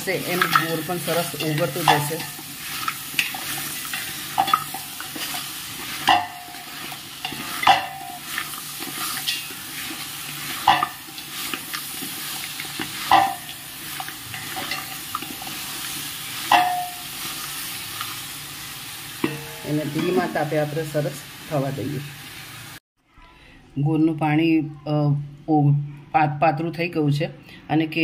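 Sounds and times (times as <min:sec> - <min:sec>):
food being stirred in a pot: 0:00.0 - 0:21.4
low sizzle: 0:00.0 - 0:22.8
utensil clinking against pot: 0:00.2 - 0:15.6, 0:16.4 - 0:17.1, 0:19.2 - 0:20.3.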